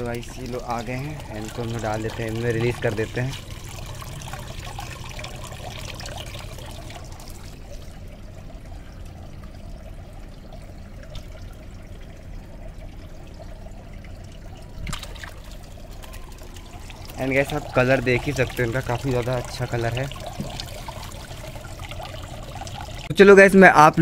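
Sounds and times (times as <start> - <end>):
water pouring and trickling: 0.0 - 24.0
splash in tub of water: 14.8 - 16.1.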